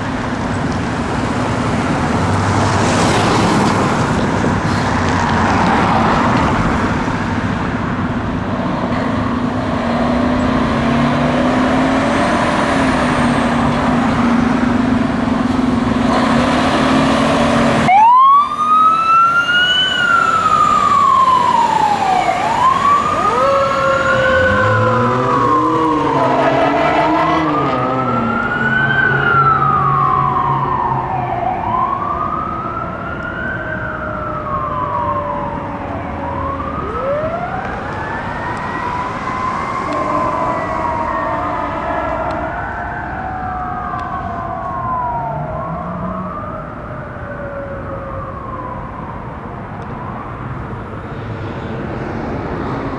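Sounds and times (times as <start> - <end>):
electronic siren wailing: 17.8 - 49.1.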